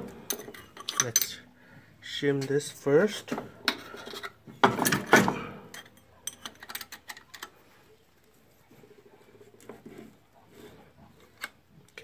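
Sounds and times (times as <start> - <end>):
metal parts clinking and knocking: 0.2 - 1.4, 3.7 - 7.5.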